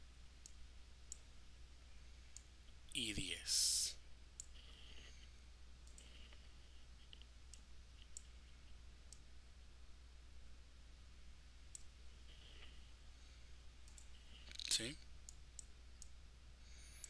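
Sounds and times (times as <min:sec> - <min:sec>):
computer mouse clicks: 0:05.8 - 0:06.4, 0:13.8 - 0:16.1.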